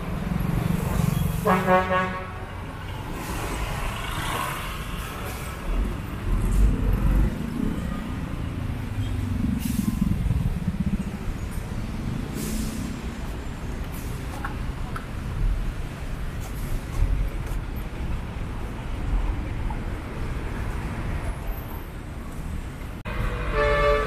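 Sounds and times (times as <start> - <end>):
road traffic rumble: 0.0 - 24.0
short hisses: 12.3 - 13.0.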